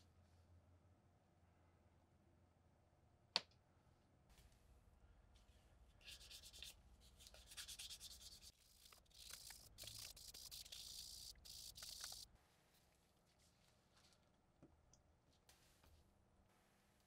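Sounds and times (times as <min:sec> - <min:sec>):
plastic rubbed on sandpaper: 0:06.0 - 0:12.3.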